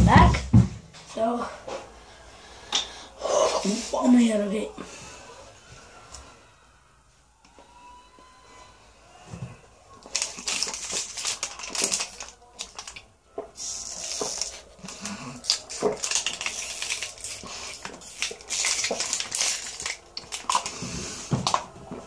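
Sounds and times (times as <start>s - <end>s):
plastic bottle crackling and crinkling: 10.0s - 22.0s.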